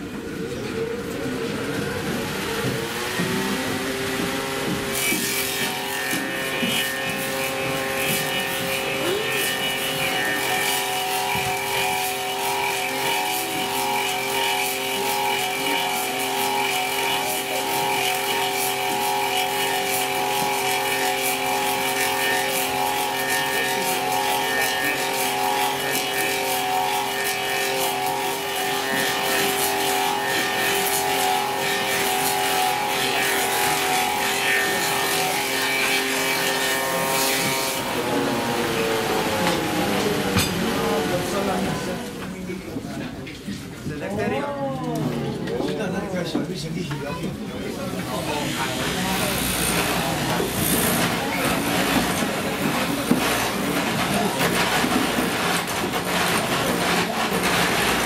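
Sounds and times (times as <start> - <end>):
machine whine: 0.0 - 43.0
cutter crackling through wood: 2.2 - 42.5, 47.7 - 58.0.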